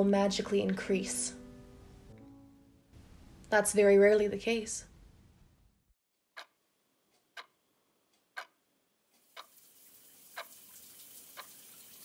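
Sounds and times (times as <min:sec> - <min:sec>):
clock ticking: 0:06.2 - 0:09.6, 0:10.4 - 0:10.6
running water hiss: 0:09.2 - 0:12.0.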